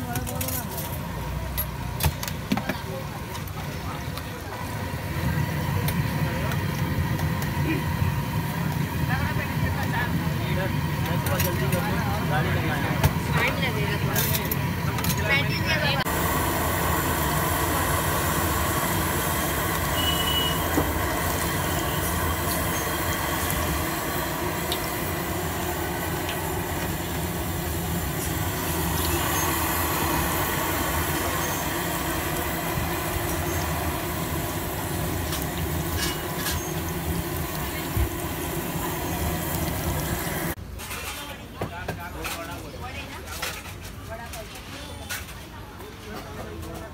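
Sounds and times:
hot oil sizzling: 0.0 - 40.6.

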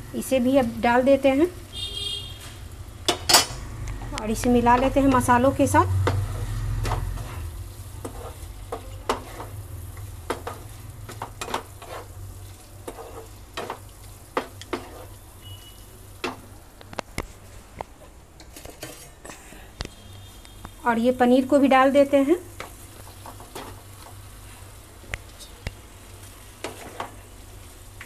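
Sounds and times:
low sizzle of frying: 0.0 - 28.0
spatula scraping a pan: 6.0 - 16.4, 18.6 - 19.2, 26.6 - 27.3.

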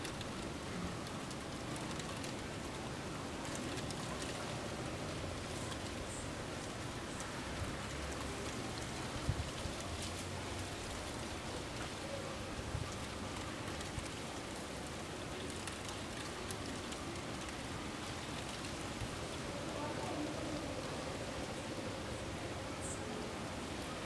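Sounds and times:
steady wind noise: 0.0 - 24.0.

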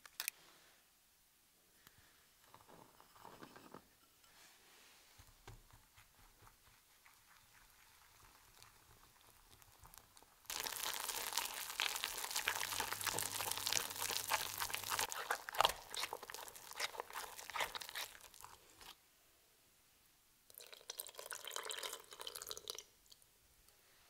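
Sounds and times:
whisk beating batter in bowl: 11.7 - 18.9.

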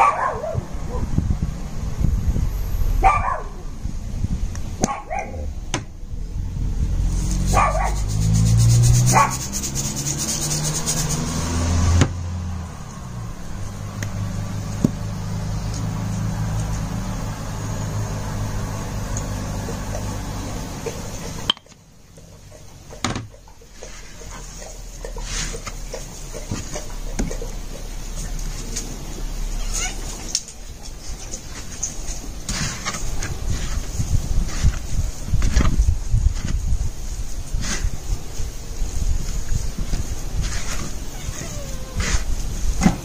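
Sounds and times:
dog barking: 0.0 - 1.1, 3.0 - 3.6, 4.8 - 5.5, 7.5 - 8.1, 9.1 - 9.4
hand spice grinder grinding: 7.2 - 11.3.

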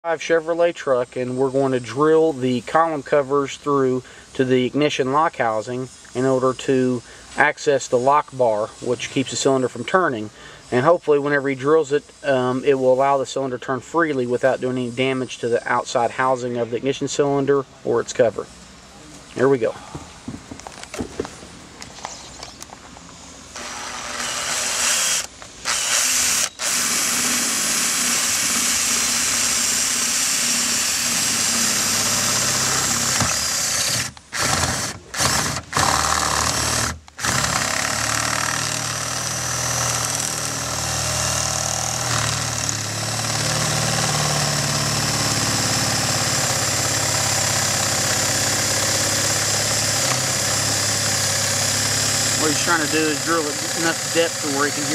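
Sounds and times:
power drill boring into metal: 23.5 - 54.9.

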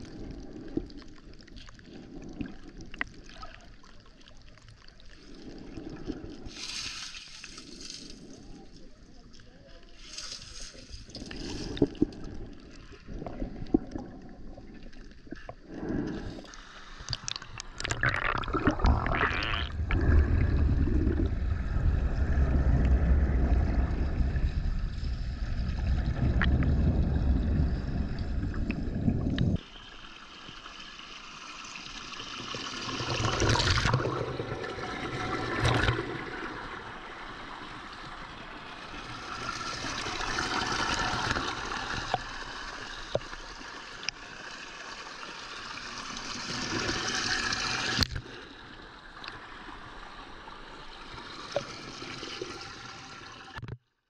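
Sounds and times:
water gurgling underwater: 17.0 - 29.6, 32.5 - 43.6
heavy low rumble: 18.7 - 29.6.

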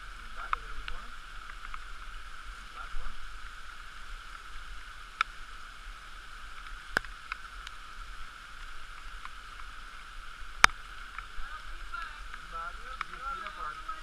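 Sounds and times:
muffled stream over rocks: 0.0 - 14.0.

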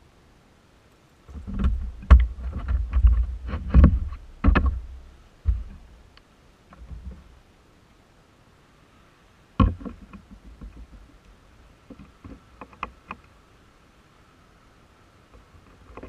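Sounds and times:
small clicks and taps: 9.6 - 13.4.

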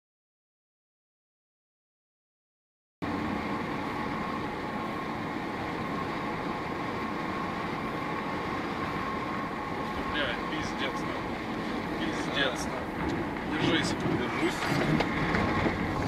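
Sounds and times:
engine drone: 3.0 - 16.0
thin steady whine: 3.0 - 16.0.

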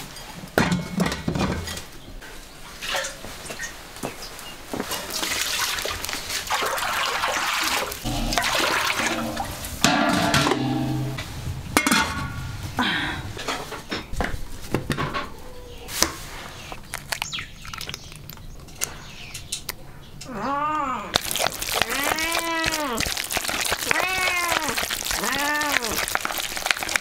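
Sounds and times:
utensils and dishes clattering: 8.1 - 12.5
animal cry: 20.2 - 26.2.

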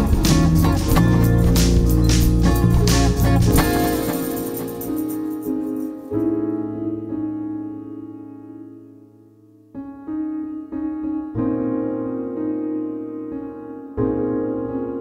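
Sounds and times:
soft music of held chords: 0.0 - 15.0.

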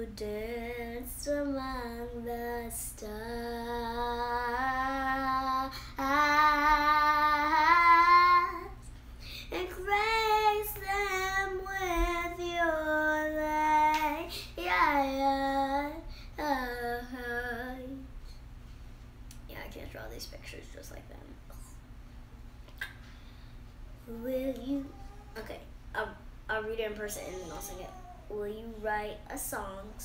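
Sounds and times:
girl singing unaccompanied: 0.0 - 18.1, 24.1 - 25.4.

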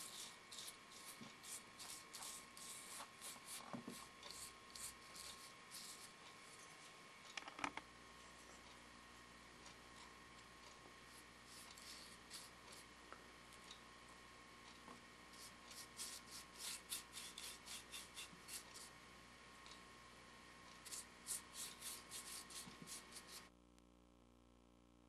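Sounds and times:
paintbrush scrubbing on wood: 0.0 - 6.2, 11.1 - 12.9, 15.4 - 18.9, 20.8 - 23.5.

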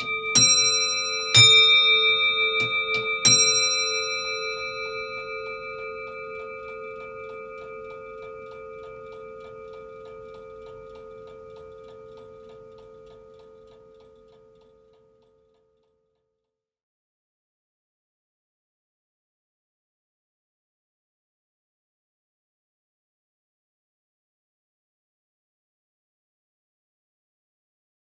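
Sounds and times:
clock bell ringing: 0.0 - 15.2
clock ticking: 0.0 - 15.6.

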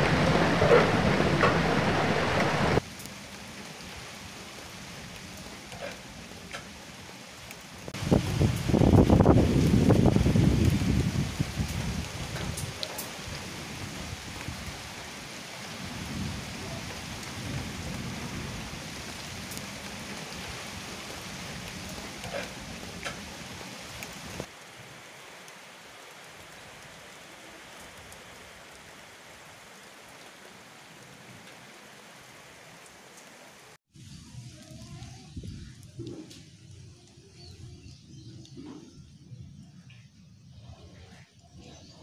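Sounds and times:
thunder rumbles: 0.0 - 2.9, 7.9 - 14.9, 15.6 - 23.5
heavy rain pouring: 0.0 - 39.6.

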